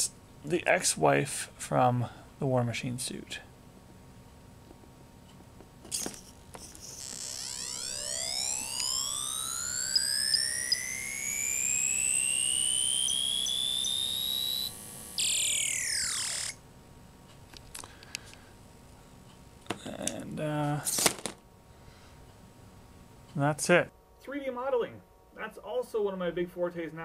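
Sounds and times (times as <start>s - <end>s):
electronic rising whine: 5.9s - 16.6s
short high electronic blips: 5.9s - 16.6s.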